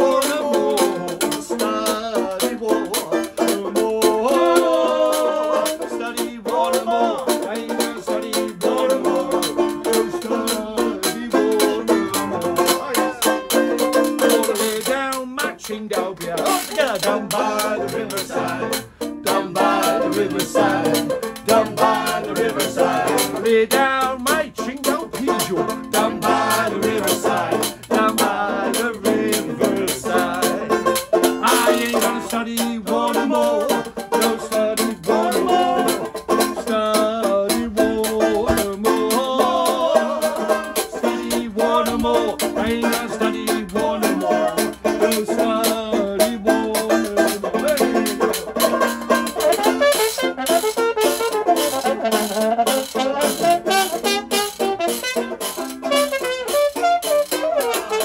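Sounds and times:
man singing: 0.0s - 48.6s, 51.6s - 54.6s, 55.9s - 58.0s
banjo strumming: 0.0s - 58.0s.

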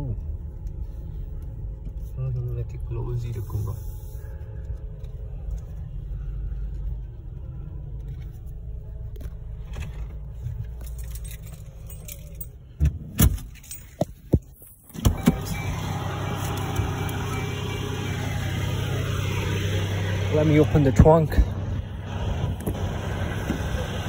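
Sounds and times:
car engine rumble inside cabin: 0.0s - 24.0s
keys jangling: 10.6s - 12.7s, 13.4s - 14.2s.

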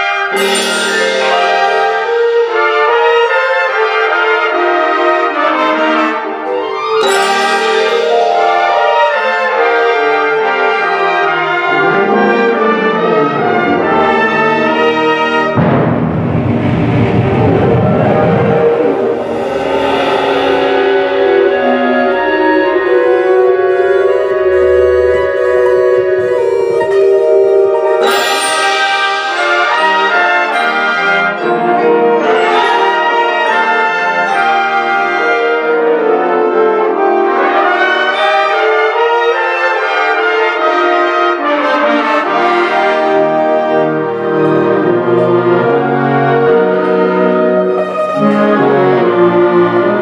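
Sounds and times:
concert band playing: 0.0s - 4.0s, 4.9s - 35.4s.

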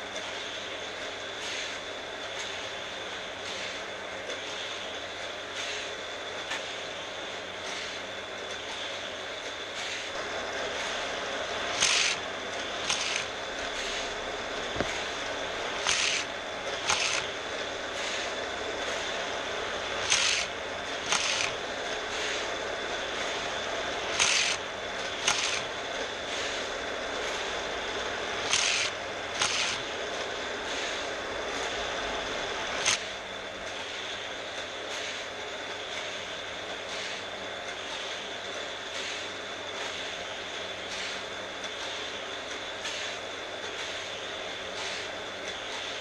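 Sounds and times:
motor whine: 6.4s - 34.5s
toy cars rushing through booster: 11.8s - 12.2s, 15.8s - 16.3s, 16.9s - 17.3s, 20.0s - 20.5s, 21.1s - 21.5s, 24.1s - 24.6s, 25.2s - 25.6s, 28.5s - 29.8s.

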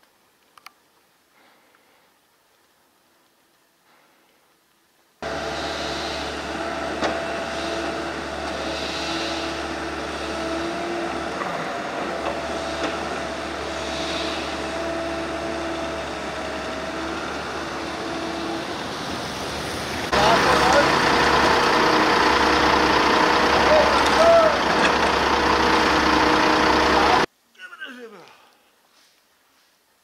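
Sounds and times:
diesel heavy equipment running: 5.2s - 27.3s.

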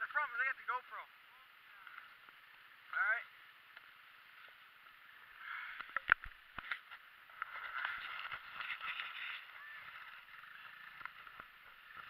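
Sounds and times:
sled scraping over snow: 6.7s - 12.0s.

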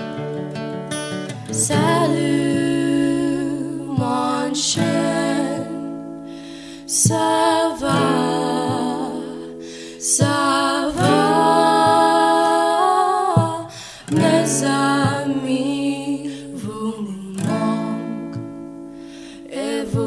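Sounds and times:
acoustic guitar strumming: 0.0s - 20.0s
women singing together: 1.5s - 18.5s, 19.4s - 20.0s.

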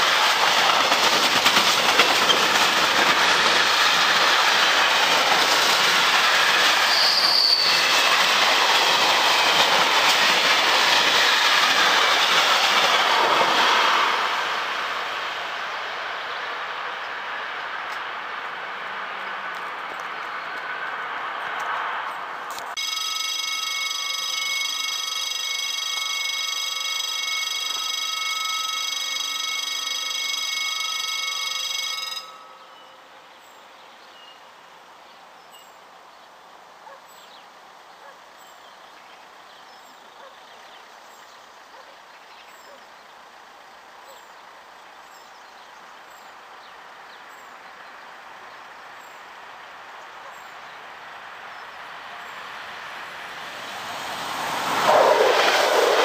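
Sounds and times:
approaching train: 0.0s - 56.0s
level-crossing warning bell: 22.8s - 33.7s.

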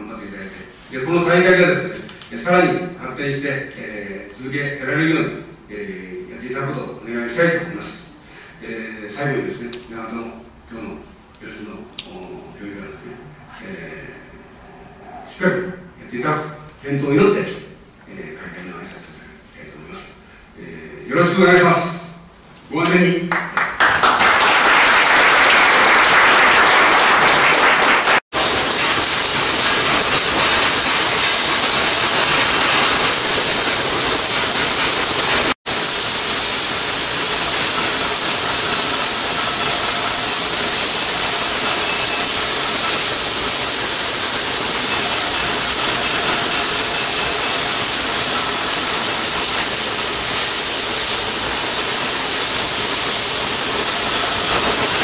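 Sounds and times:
applause: 23.3s - 35.6s
welding arc crackling hiss: 24.3s - 55.0s.

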